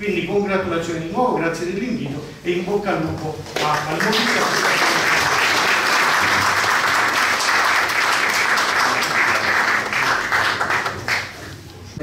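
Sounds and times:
audience applauding: 0:03.6 - 0:11.6.

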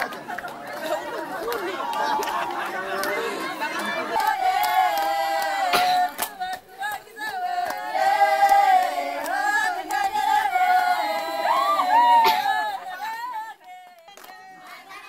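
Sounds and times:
hand claps: 0:00.0 - 0:10.1, 0:13.6 - 0:14.8
women singing in chorus: 0:00.0 - 0:15.0.

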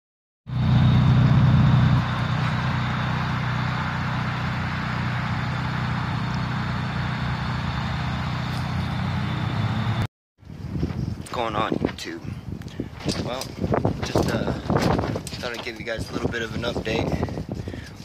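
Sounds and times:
car exhaust idling: 0:00.5 - 0:10.0.

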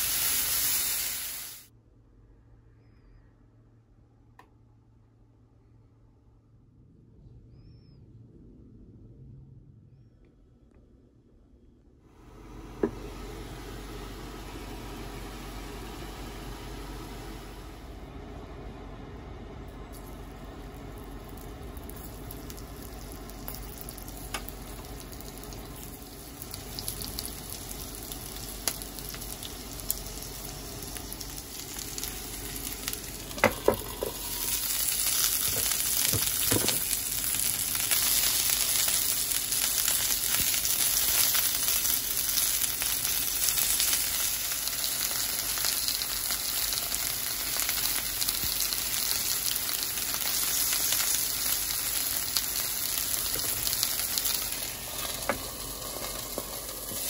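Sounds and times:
chicken sizzling in oil: 0:00.0 - 0:01.7, 0:20.0 - 0:57.0.

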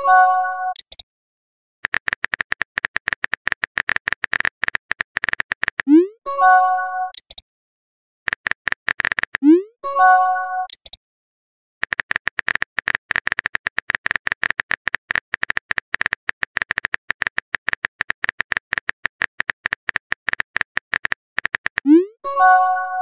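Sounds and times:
phone keyboard taps: 0:01.8 - 0:05.9, 0:11.8 - 0:21.9.

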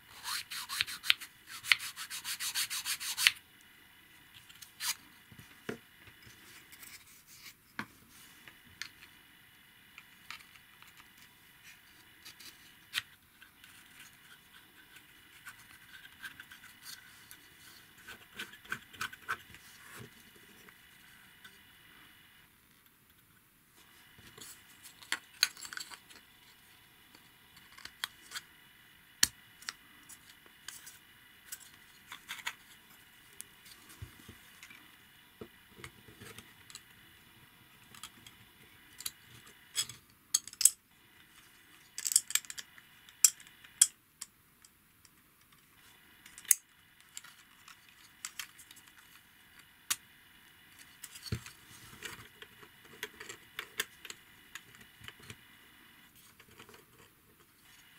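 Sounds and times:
faint high whine: 0:00.0 - 0:57.9
plastic parts clicking and knocking: 0:39.8 - 0:40.8.

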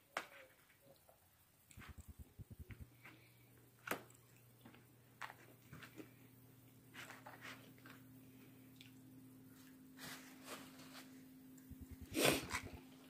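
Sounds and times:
low steady hum: 0:00.1 - 0:13.0
chewing food: 0:01.7 - 0:03.3, 0:04.0 - 0:05.9, 0:08.7 - 0:09.1.

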